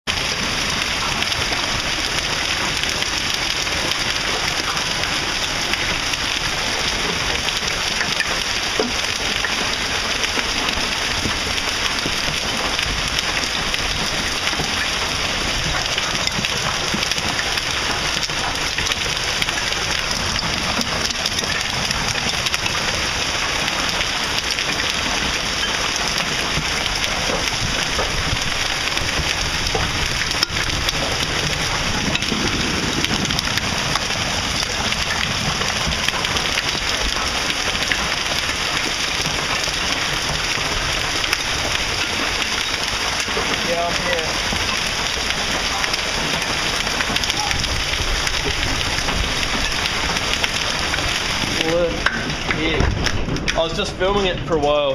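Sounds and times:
heavy hail clattering: 0.1 - 54.9.

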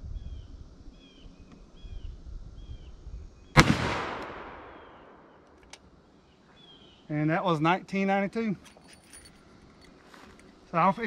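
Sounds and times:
bird chirping: 0.1 - 3.5, 4.7 - 7.3
revolver shot with echo: 3.6 - 5.2.

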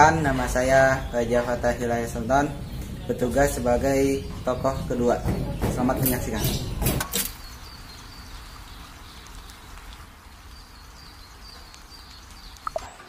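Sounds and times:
steady low hiss: 0.0 - 13.0
faint high chirps: 11.1 - 13.0.

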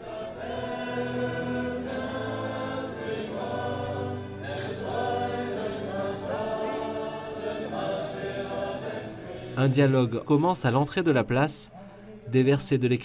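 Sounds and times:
choir singing a hymn: 0.0 - 10.5.

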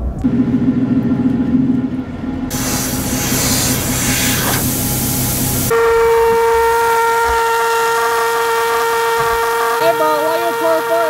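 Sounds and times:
air hissing out of tire: 2.5 - 5.7
pitched air whistle from tire: 2.5 - 9.8.

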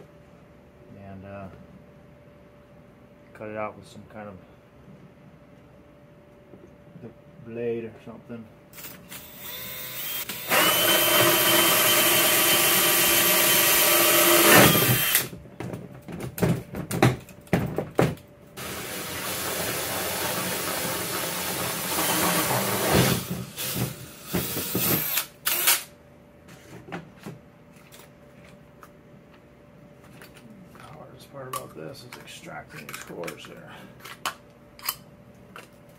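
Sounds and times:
drill hole saw cutting plastic: 8.8 - 15.3, 18.6 - 25.9.

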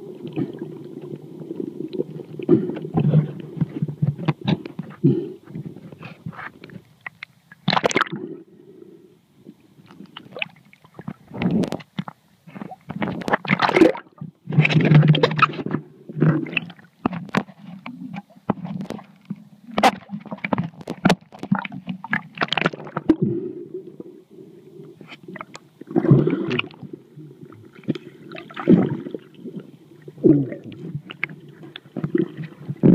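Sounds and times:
muffled water sloshing: 25.0 - 32.9.

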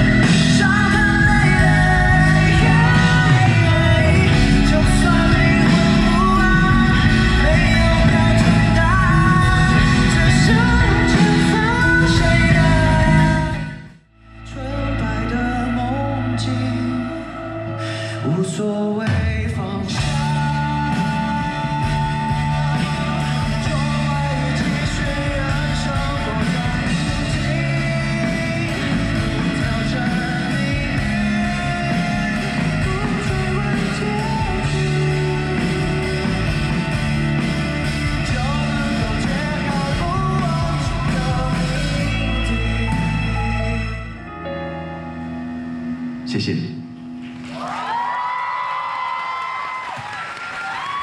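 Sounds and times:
steady drum beat: 0.0 - 13.6, 20.0 - 43.3
man singing into a microphone: 0.0 - 13.8, 14.4 - 36.8, 38.0 - 44.2
guitar: 0.0 - 51.0.

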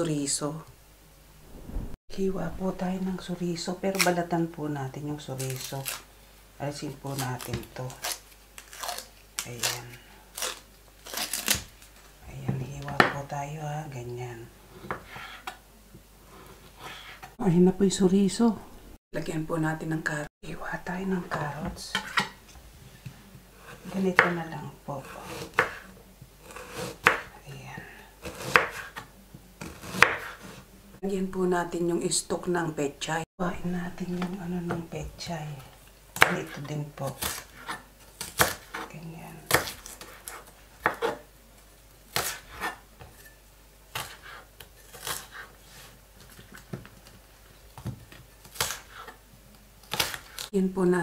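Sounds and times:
knife chopping on cutting board: 14.8 - 15.5, 25.0 - 25.8, 26.4 - 27.3, 28.2 - 30.6, 39.5 - 41.2.

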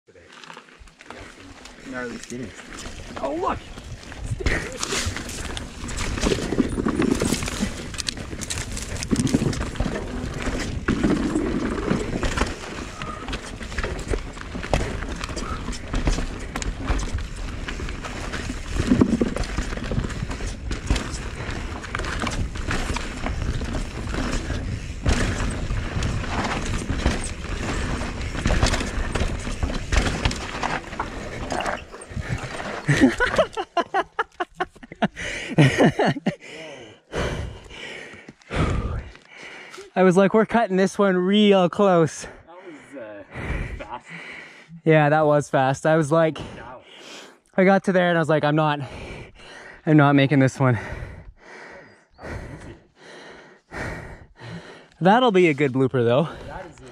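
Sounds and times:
tyres on dirt and roots: 0.1 - 56.9
bike rattling over bumps: 1.0 - 33.7.

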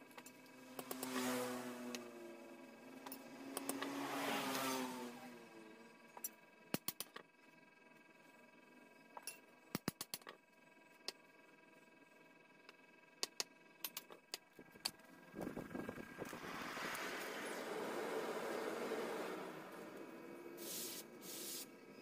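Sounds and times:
sharp clicks and light ticks: 6.2 - 7.2, 9.2 - 10.4, 12.7 - 15.0.

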